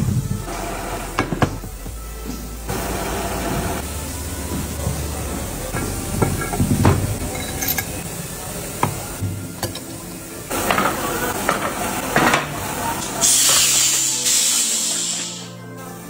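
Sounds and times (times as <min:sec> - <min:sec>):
loud hiss: 0:00.0 - 0:09.2, 0:10.5 - 0:15.6
metal plates knocking and scraping: 0:05.7 - 0:08.0.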